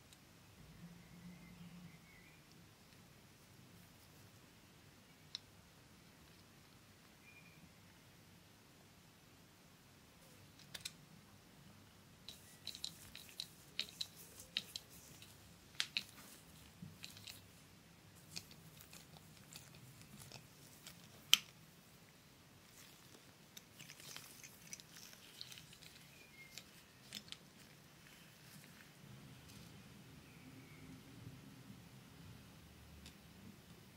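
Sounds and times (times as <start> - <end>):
small parts clicking: 12.2 - 17.4, 22.7 - 28.2.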